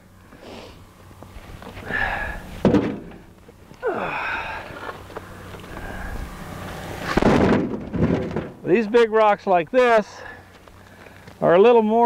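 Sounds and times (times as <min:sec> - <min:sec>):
rocks scraping and clattering: 0:07.0 - 0:09.1.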